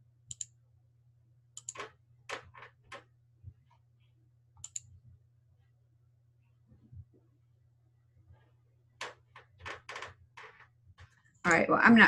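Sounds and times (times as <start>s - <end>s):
low steady hum: 0.0s - 12.0s
computer mouse clicks: 0.3s - 0.6s, 1.6s - 3.1s, 4.6s - 4.9s.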